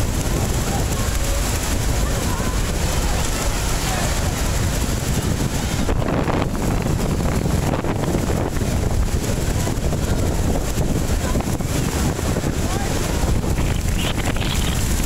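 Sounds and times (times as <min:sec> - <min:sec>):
waterfall rushing: 0:00.0 - 0:15.0
wind buffeting microphone: 0:00.0 - 0:15.0.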